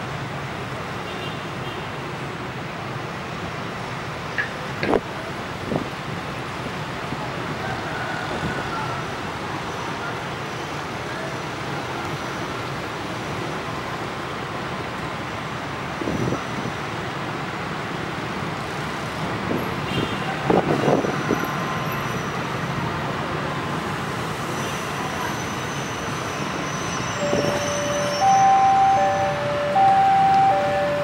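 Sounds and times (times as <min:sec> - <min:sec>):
diesel locomotive running: 0:20.8 - 0:31.0
steady tone: 0:27.2 - 0:31.0.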